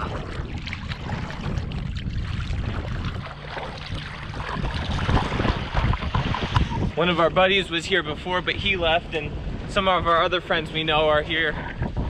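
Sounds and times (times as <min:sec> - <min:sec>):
water splashing from paddling: 0:00.0 - 0:07.0
steady low rumble: 0:00.0 - 0:12.0.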